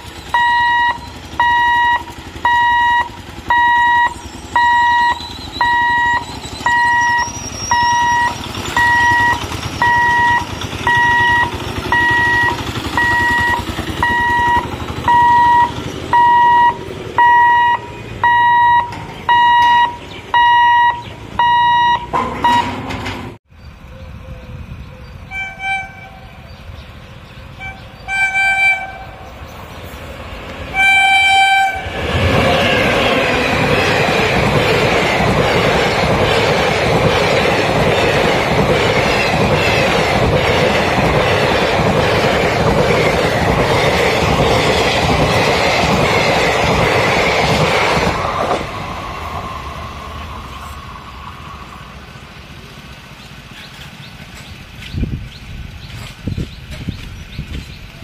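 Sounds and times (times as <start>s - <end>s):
level crossing alarm beeping: 0.0s - 23.1s
train wheels rumbling on rails: 0.0s - 58.0s
train horn: 0.4s - 18.9s, 25.2s - 26.4s, 27.5s - 29.4s, 30.6s - 32.3s.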